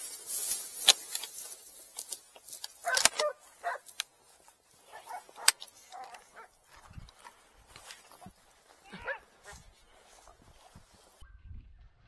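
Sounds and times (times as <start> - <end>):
gear clicking and rattling: 0.0 - 11.2
dogs barking and yelping: 2.8 - 3.9, 4.8 - 10.5.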